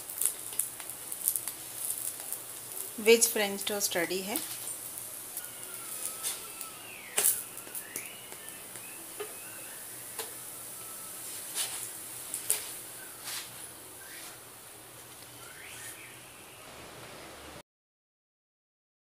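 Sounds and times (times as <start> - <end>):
wooden spatula scraping iron griddle: 5.4 - 7.8, 11.2 - 14.4.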